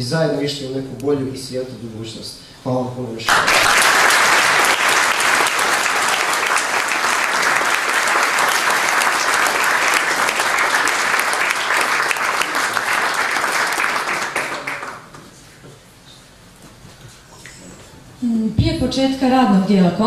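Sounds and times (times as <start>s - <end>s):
audience applauding: 3.3s - 15.2s.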